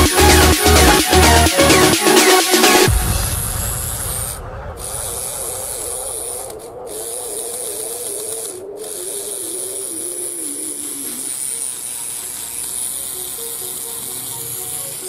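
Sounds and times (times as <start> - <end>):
small motor driving plastic gears: 4.8 - 15.0.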